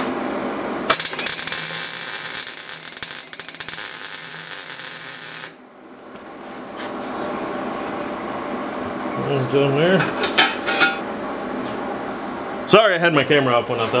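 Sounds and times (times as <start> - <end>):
welding arc crackling: 0.9 - 5.6.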